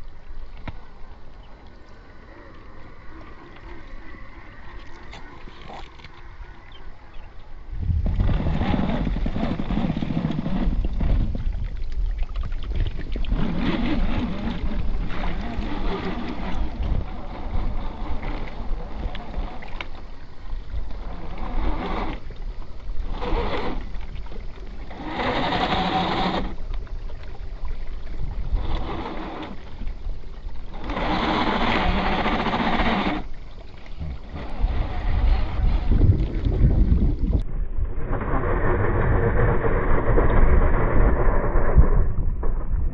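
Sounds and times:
wind rumble on microphone: 0:02.1 - 0:42.9
electric motors whining: 0:23.0 - 0:26.6, 0:30.7 - 0:33.4.

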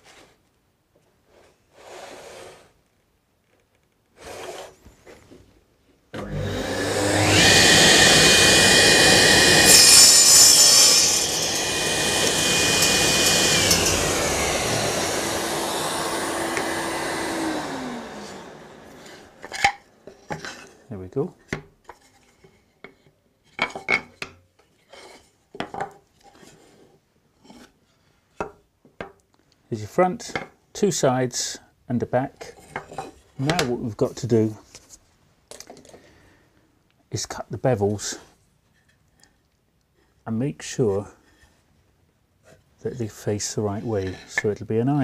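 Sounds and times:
table saw winding down: 0:06.2 - 0:20.6
table saw cutting wood: 0:06.2 - 0:20.7.

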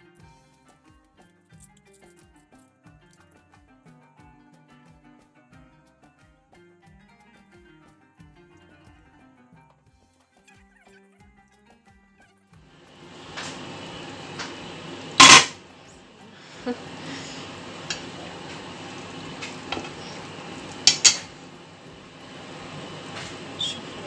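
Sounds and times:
steady hiss from pot: 0:12.7 - 0:24.0
metal pot and utensils clanking: 0:13.1 - 0:15.7, 0:17.0 - 0:21.5.

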